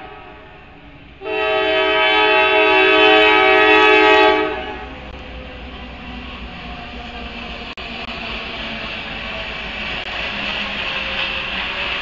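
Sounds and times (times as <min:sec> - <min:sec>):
locomotive air horn chord: 0:00.0 - 0:05.0
freight train passing: 0:00.0 - 0:12.0.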